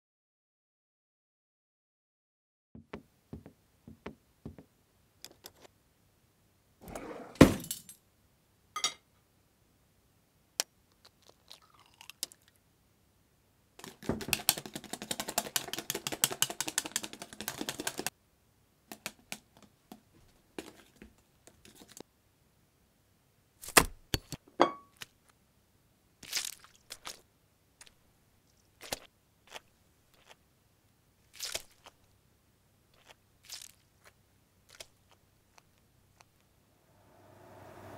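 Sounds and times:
whisking egg in glass bowl: 13.8s - 18.1s
kitchen clinks and knocks: 24.6s - 24.9s.

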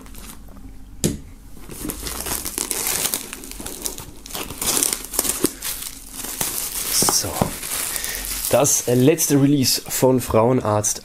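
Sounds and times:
plastic film crinkling: 1.6s - 10.2s.

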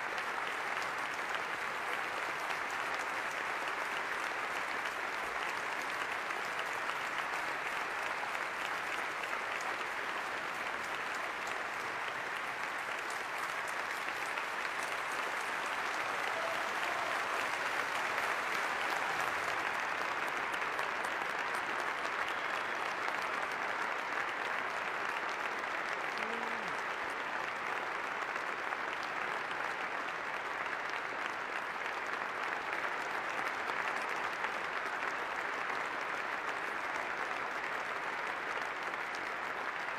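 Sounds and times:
large audience applauding: 0.0s - 39.9s.

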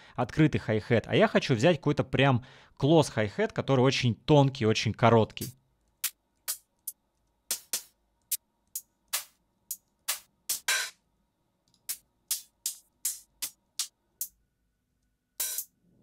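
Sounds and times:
closed hi-hat ticks: 5.4s - 10.7s, 11.7s - 14.4s.

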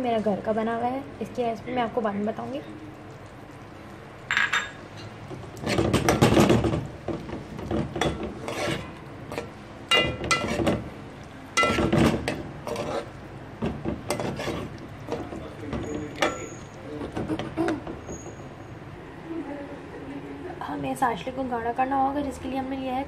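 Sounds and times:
metal spoon scraping a pot: 4.5s - 6.8s, 7.8s - 10.8s, 11.6s - 13.2s, 13.8s - 18.5s.

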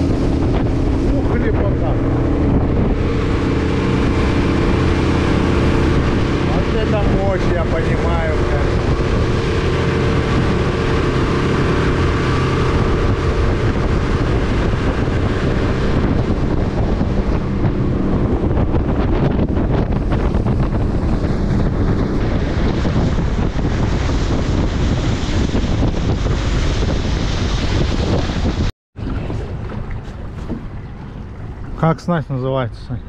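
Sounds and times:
outboard motor running: 0.0s - 33.0s
rushing water: 0.0s - 33.0s
wind buffeting microphone: 0.0s - 33.0s.

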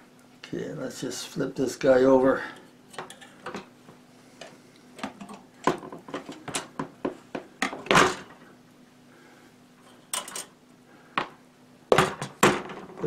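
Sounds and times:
metal trap clinking and clanking: 9.9s - 10.5s.

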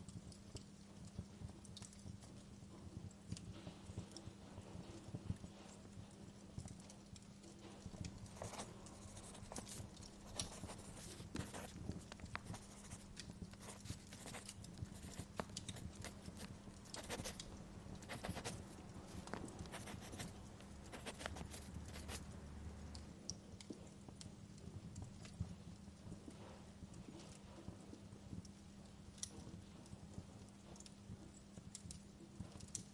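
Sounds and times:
steady low hum: 7.9s - 23.1s.

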